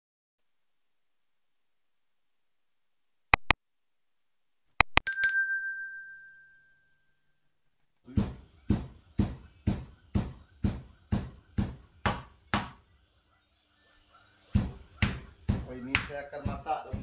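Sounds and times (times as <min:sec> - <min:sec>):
mouse clicks: 0:03.4 - 0:03.6
bright bell chime: 0:05.0 - 0:07.3
dull thuds: 0:14.6 - 0:17.0.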